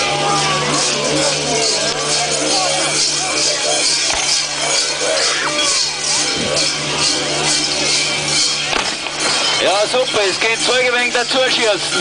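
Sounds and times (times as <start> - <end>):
large bells jangling: 0.0 - 12.0.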